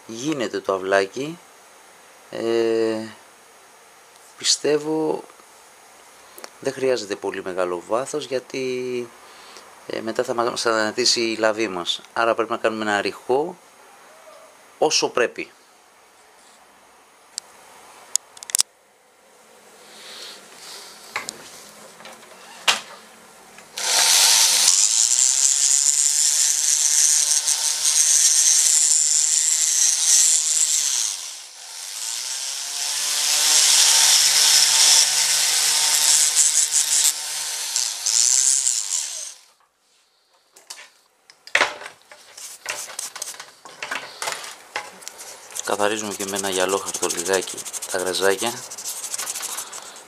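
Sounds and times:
rotary tool grinding: 0:23.8 - 0:39.5, 0:45.4 - 0:50.0
light taps and scrapes: 0:42.1 - 0:45.7.

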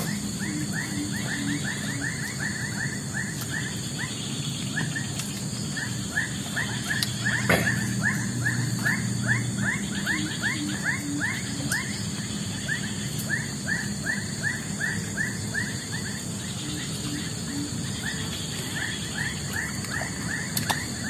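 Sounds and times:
animal chirping calls: 0:00.0 - 0:21.0
high insect-like drone: 0:00.0 - 0:21.0.

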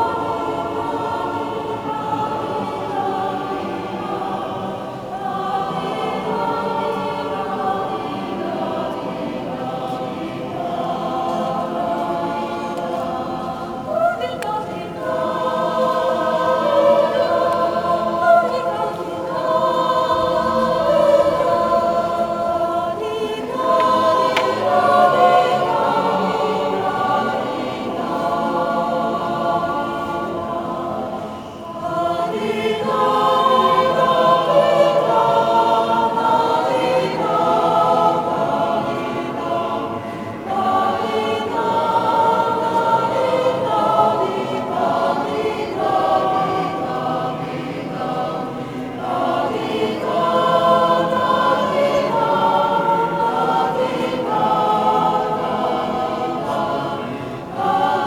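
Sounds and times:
choir singing in a reverberant church: 0:00.0 - 0:58.0.

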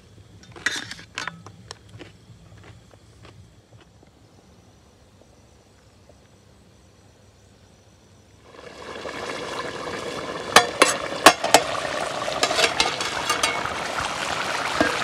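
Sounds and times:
metal lid and ladle clinking: 0:00.4 - 0:01.4, 0:10.6 - 0:11.8, 0:12.4 - 0:13.7
curry bubbling and sizzling: 0:08.4 - 0:15.0.

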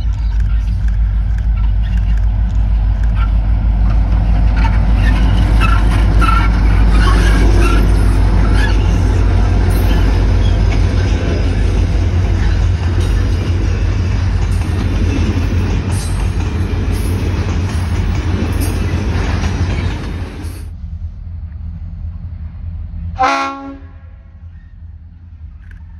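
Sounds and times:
freight wagons rolling past: 0:00.0 - 0:20.7
wheel and rail clatter: 0:00.0 - 0:20.8
diesel locomotive engine rumble: 0:00.0 - 0:25.9.

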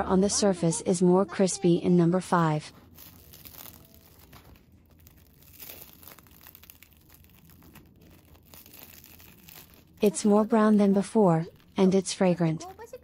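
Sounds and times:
soft tearing of bread: 0:02.7 - 0:11.9
toast crust crackling: 0:02.7 - 0:13.0.

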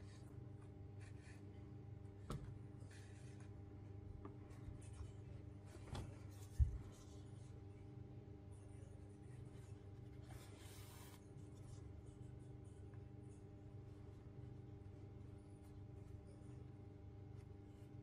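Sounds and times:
steady low hum: 0:00.0 - 0:18.0
needle and yarn rubbing: 0:08.6 - 0:11.8.

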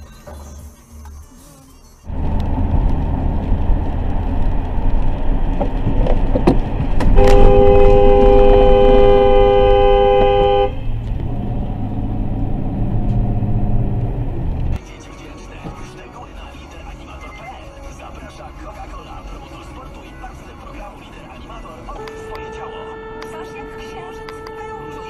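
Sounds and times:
moving car road rumble: 0:00.0 - 0:25.0
car horn two-note blare: 0:07.2 - 0:10.8, 0:22.0 - 0:25.0.

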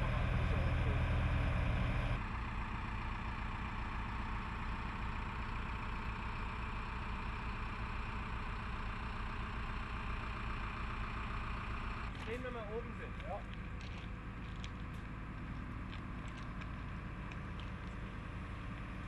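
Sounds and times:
diesel engine running: 0:00.0 - 0:19.0.

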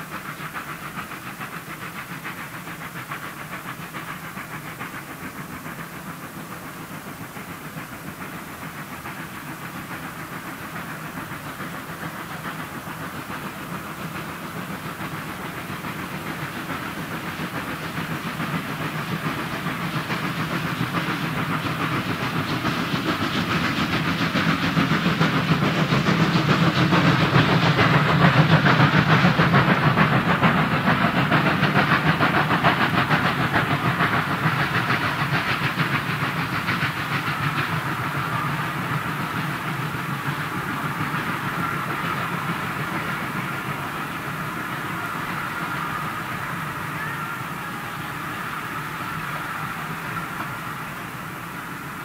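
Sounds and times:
steam locomotive exhaust beats: 0:00.0 - 0:52.0
train coaches clattering on rails: 0:00.0 - 0:52.0.

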